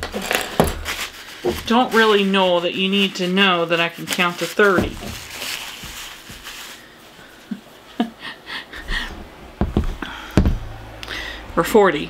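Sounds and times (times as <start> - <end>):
heavy low thump: 9.1 - 11.0.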